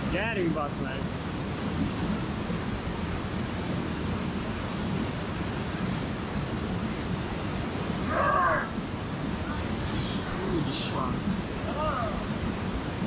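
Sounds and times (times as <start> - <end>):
stream rushing over rocks: 7.5 - 13.0
person shouting: 8.1 - 8.7, 11.7 - 12.2.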